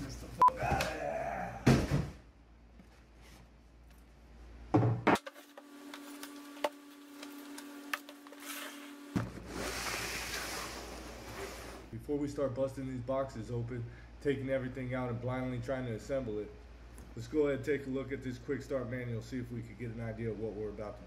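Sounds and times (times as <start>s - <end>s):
box scraping across table: 8.3s - 11.9s.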